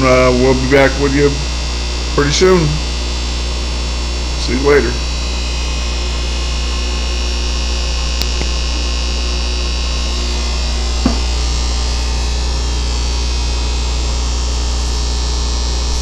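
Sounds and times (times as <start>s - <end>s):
aquarium air pumps humming: 0.0s - 16.0s
short knock: 11.0s - 11.4s.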